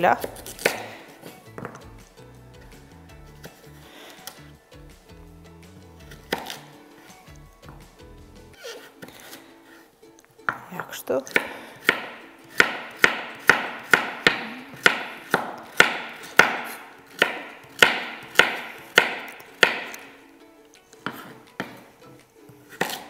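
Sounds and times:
knife chopping on wooden board: 0:00.2 - 0:01.9, 0:06.1 - 0:06.7, 0:10.5 - 0:20.1, 0:21.0 - 0:21.9, 0:22.7 - 0:23.0.

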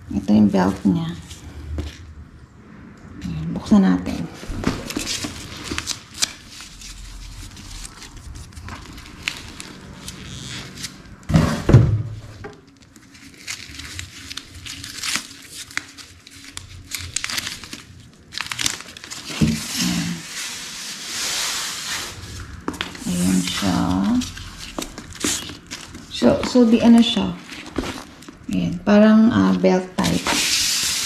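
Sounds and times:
wrapping crinkling and tearing: 0:04.4 - 0:11.2, 0:12.5 - 0:28.7, 0:30.0 - 0:31.0
handling noise: 0:21.2 - 0:28.6.

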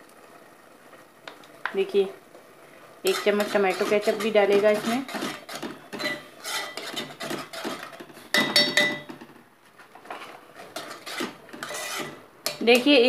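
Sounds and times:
spoon stirring in metal pot: 0:03.0 - 0:09.3, 0:10.0 - 0:13.0.

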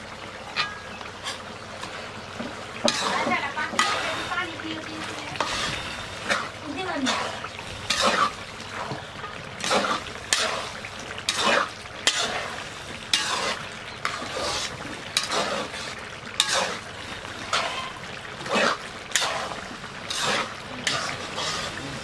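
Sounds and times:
metal ladle scraping wok: 0:00.4 - 0:22.0.

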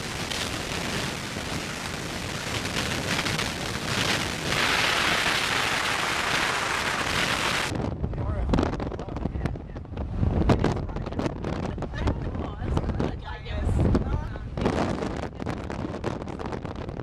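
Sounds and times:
rain: 0:00.0 - 0:07.7
wind: 0:00.0 - 0:17.0.

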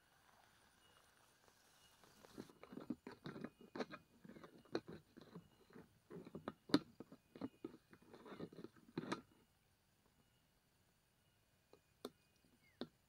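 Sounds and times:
grasshopper crackling and rustling: 0:00.0 - 0:06.4.

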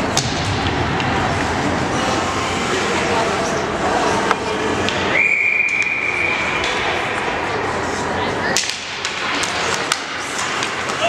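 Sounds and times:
murmur of voices: 0:00.0 - 0:11.0
hockey sticks clacking: 0:04.0 - 0:07.4, 0:08.4 - 0:11.0
referee whistle: 0:05.2 - 0:06.4.

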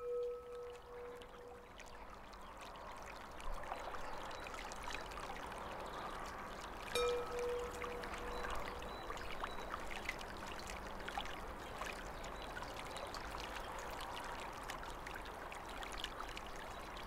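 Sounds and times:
bell ringing: 0:00.0 - 0:01.1, 0:07.0 - 0:08.0
stream flowing: 0:00.0 - 0:17.0.

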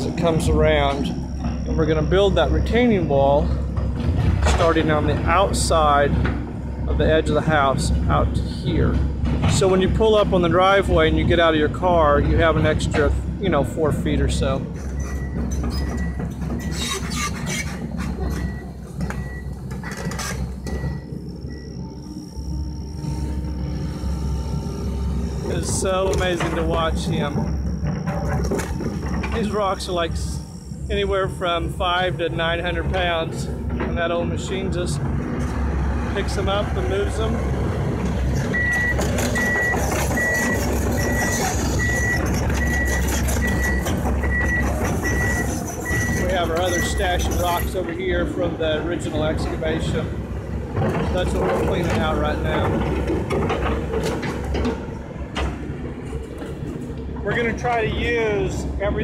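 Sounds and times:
metallic clanks and rattles: 0:00.0 - 0:07.1, 0:08.7 - 0:11.1, 0:14.4 - 0:21.6, 0:25.5 - 0:30.3, 0:32.7 - 0:58.0
excavator diesel engine running: 0:00.0 - 0:59.0.

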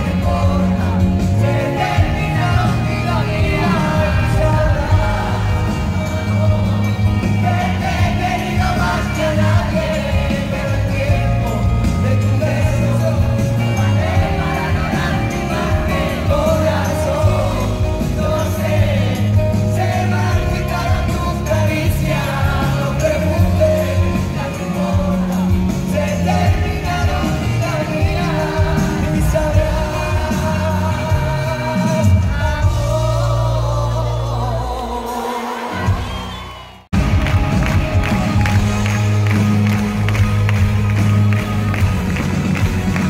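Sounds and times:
man singing: 0:00.0 - 0:36.3
bass: 0:00.0 - 0:43.0
drums: 0:00.0 - 0:43.0
keyboards: 0:00.0 - 0:43.0.

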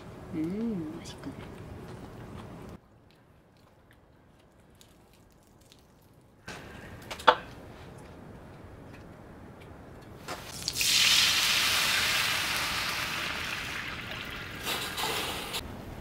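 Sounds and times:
water hissing on hot griddle: 0:10.5 - 0:15.6.

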